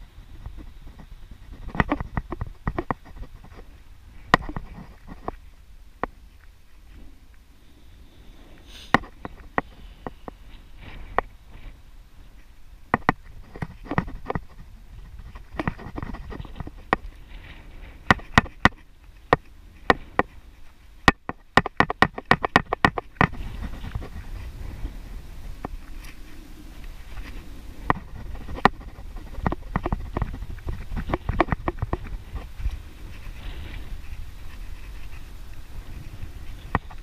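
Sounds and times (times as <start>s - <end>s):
bicycle clicks and knocks: 0.4s - 5.4s, 12.8s - 24.2s, 27.1s - 33.3s
low riding rumble: 23.1s - 37.0s.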